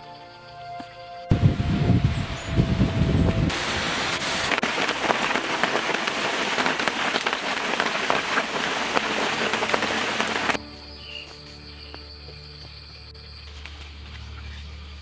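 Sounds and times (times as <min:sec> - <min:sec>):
heavy rain on foliage: 0:03.5 - 0:10.6.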